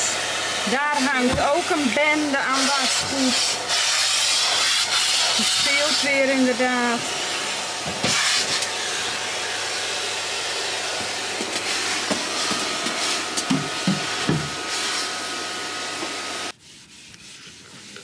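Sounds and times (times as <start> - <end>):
vacuum cleaner running: 0.0 - 16.6.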